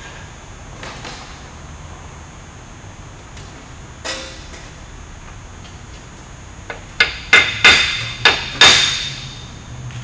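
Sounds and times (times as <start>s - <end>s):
hammer striking steel tube: 4.0s - 4.5s, 7.0s - 9.3s.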